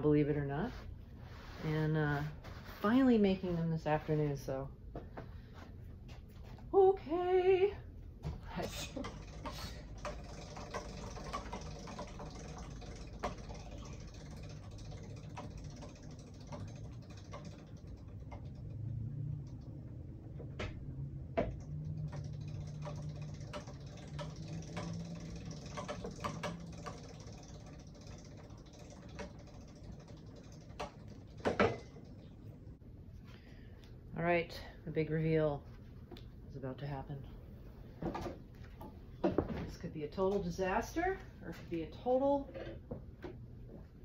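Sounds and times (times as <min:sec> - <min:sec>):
low hum: 0:06.6 - 0:35.2.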